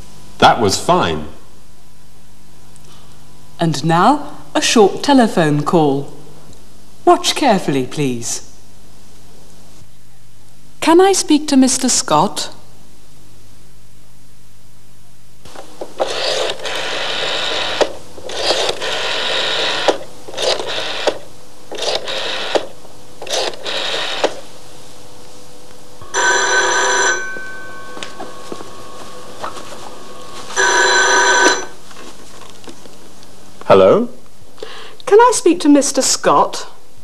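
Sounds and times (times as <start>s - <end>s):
telephone ringing: 16.0s - 21.1s, 26.0s - 31.8s
rotary phone dial whirring: 16.0s - 24.4s, 30.6s - 31.7s.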